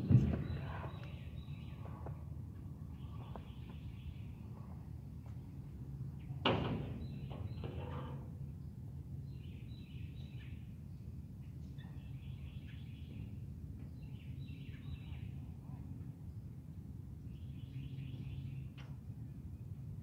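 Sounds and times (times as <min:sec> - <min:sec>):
steady low rumble: 0:00.0 - 0:07.5.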